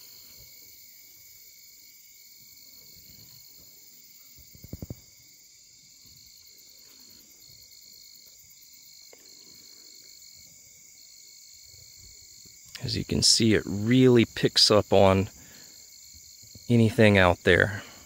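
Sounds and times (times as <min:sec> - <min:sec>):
crickets trilling: 0:00.0 - 0:18.0.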